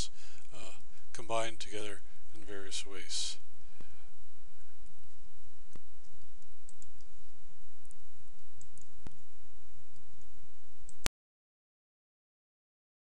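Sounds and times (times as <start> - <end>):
computer mouse clicks: 4.8 - 7.1, 7.8 - 9.2.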